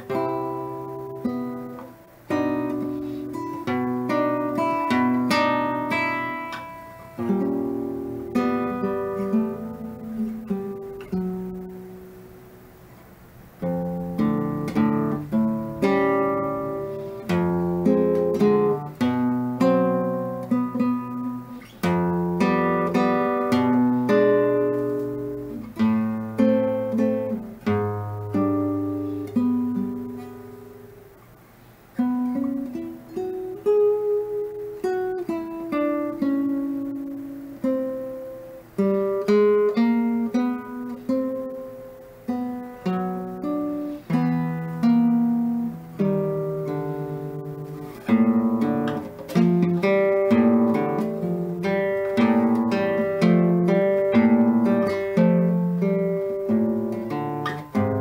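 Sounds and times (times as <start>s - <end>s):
fingerstyle classical guitar: 0.0s - 58.0s.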